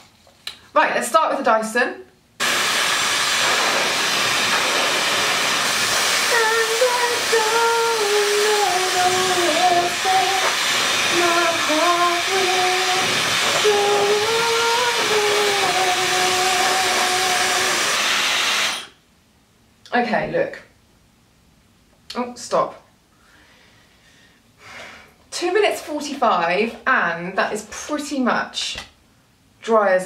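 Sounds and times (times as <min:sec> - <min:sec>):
hair dryer blowing: 0:02.4 - 0:19.0.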